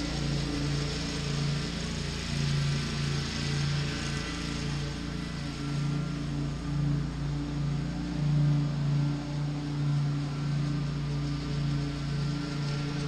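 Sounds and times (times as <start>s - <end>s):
riding lawn mower engine: 0.0s - 13.0s.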